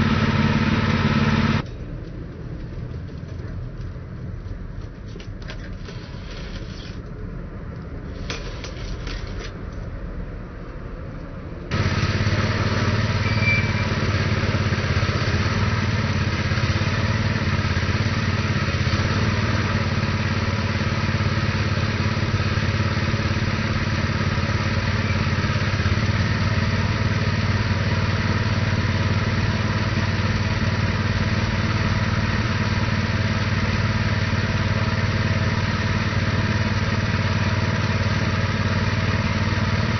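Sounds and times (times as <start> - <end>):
engine pull-started and running: 11.7 - 39.9.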